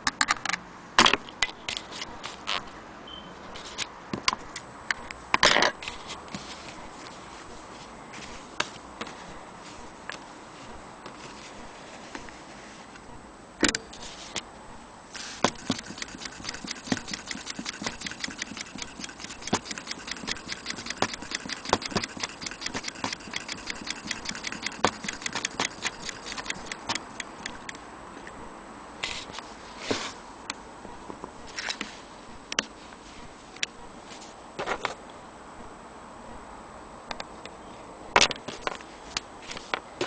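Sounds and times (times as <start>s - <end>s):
sewing machine clicking: 15.4s - 27.8s.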